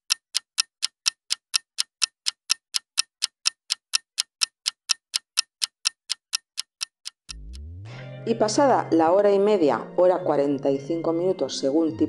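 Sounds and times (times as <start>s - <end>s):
clock ticking: 0.0s - 7.7s.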